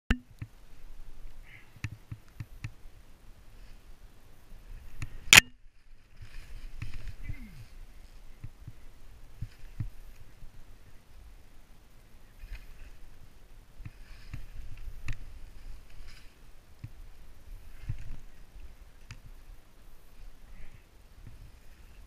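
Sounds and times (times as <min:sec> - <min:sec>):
skis chattering over snow: 0:05.8 - 0:08.2.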